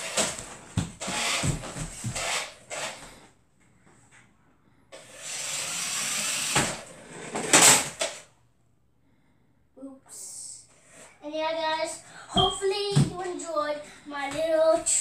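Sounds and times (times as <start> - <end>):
toy truck motor whirring: 1.0 - 3.0, 5.0 - 8.2.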